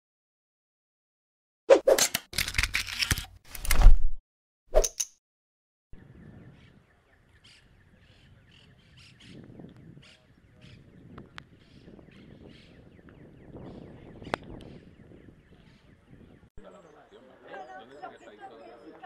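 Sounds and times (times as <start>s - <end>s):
outdoor background: 1.7s - 5.2s, 5.9s - 19.0s
birds chirping: 5.9s - 19.0s.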